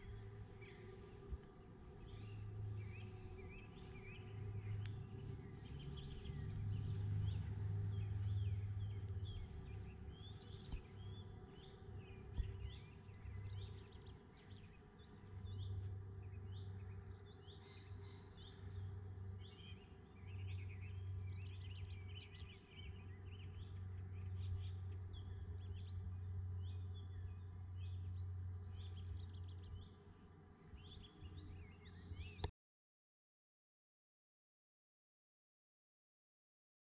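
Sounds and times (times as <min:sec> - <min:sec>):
birds chirping and warbling: 0:00.0 - 0:32.5
low rumble: 0:02.0 - 0:12.8.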